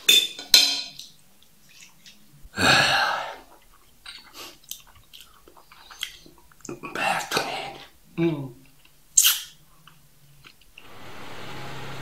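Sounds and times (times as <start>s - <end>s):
man's breathy burst: 2.6s - 3.5s
chewing mouth clicks: 3.5s - 6.8s, 8.7s - 10.7s.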